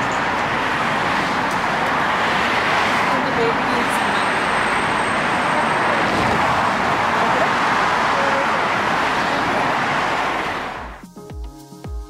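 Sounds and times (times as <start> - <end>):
road traffic noise: 0.0 - 11.0
music with a regular beat: 11.0 - 12.0.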